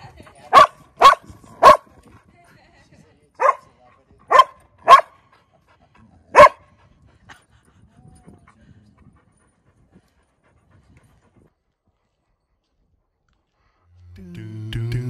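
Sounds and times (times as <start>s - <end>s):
dog barking: 0.5s - 1.9s, 3.4s - 3.7s, 4.3s - 5.2s, 6.3s - 6.7s.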